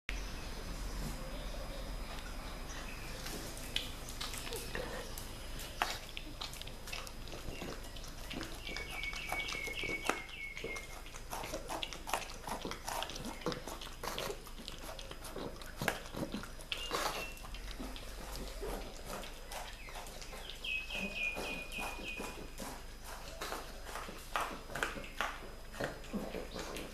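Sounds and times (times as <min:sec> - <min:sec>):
dog licking and chewing: 0:03.6 - 0:26.9.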